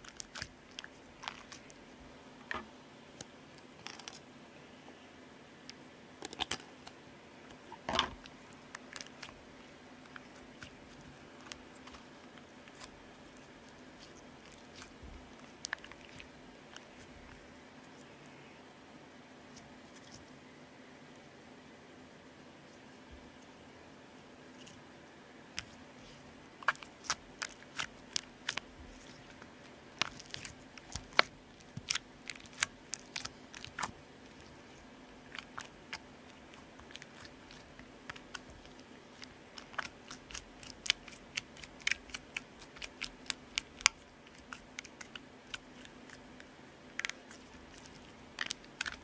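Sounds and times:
slime clicking and popping: 36.8 - 45.8, 47.0 - 49.0.

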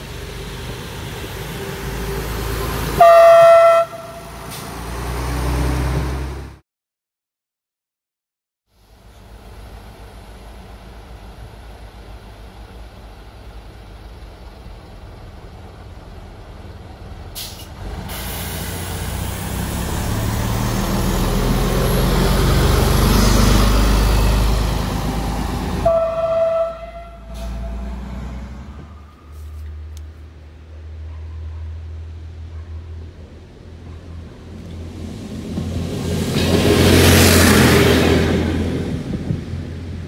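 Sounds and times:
diesel railcar engine running: 0.0 - 6.6, 8.7 - 40.0
train horn toot: 3.0 - 4.4, 25.8 - 28.0.

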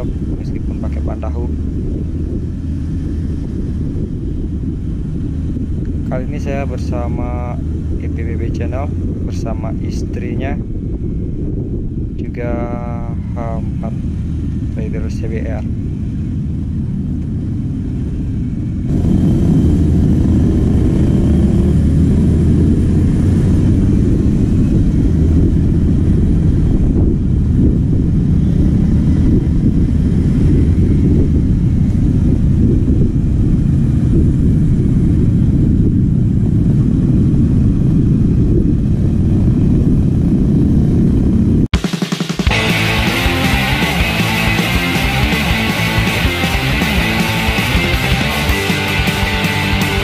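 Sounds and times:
wind rumbling on microphone: 0.0 - 41.8
motorcycle engine running: 41.3 - 50.0.

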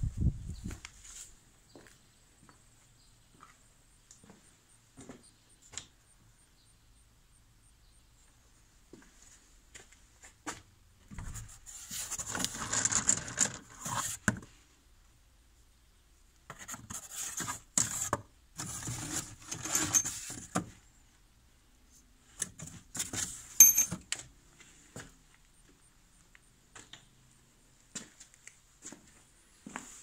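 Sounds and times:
rubbing and rustling: 11.1 - 14.4, 16.5 - 20.6.

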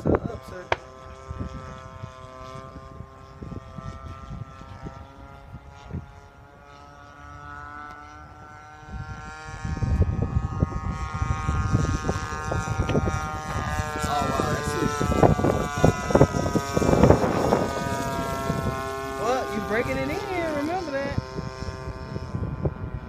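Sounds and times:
model plane engine buzzing drone: 0.0 - 23.0
low rumble: 8.8 - 23.0.

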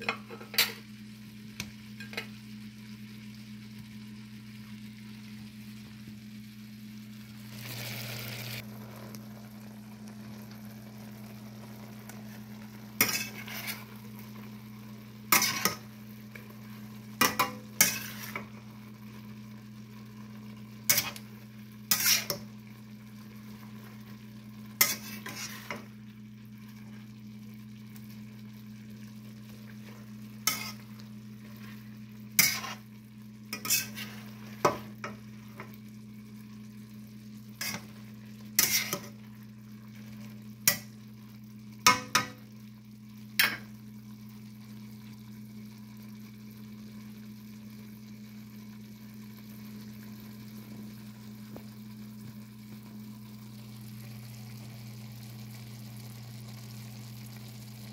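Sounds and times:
food sizzling in a pan: 0.0 - 57.9
steady low hum: 0.0 - 57.9
utensil scraping and tapping pan: 13.0 - 13.9, 30.5 - 30.9, 33.5 - 35.7.

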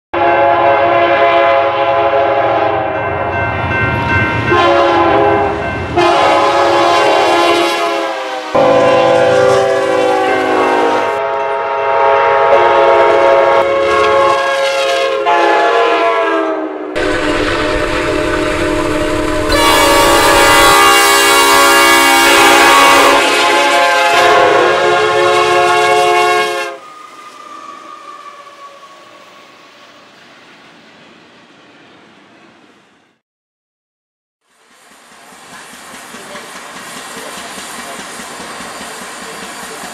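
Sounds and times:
locomotive air horns: 0.2 - 3.0, 4.5 - 29.1
passing trains: 0.2 - 33.2, 34.4 - 39.9.

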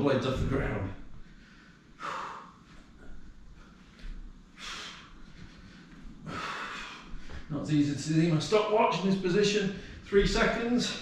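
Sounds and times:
quiet breathing: 1.1 - 7.6, 9.7 - 10.2.

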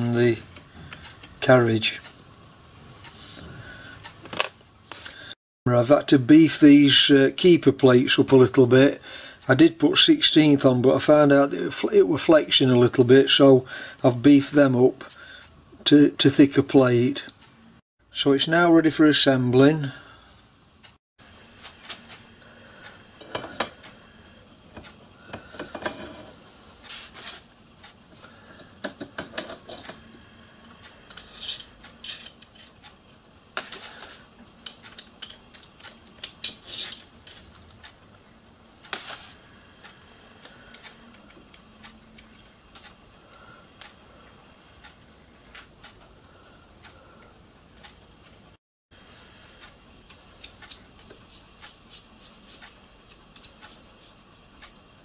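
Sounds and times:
metal parts clinking: 31.1 - 32.8.

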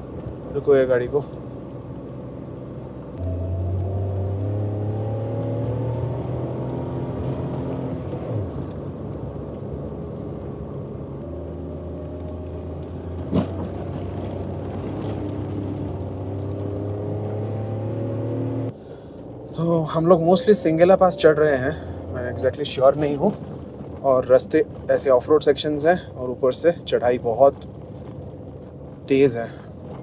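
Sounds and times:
car engine revving on gravel climb: 3.1 - 18.7.

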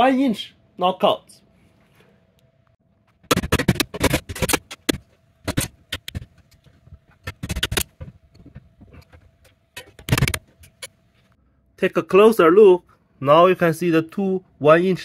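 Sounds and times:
metal knocking and rattling: 3.3 - 10.9.

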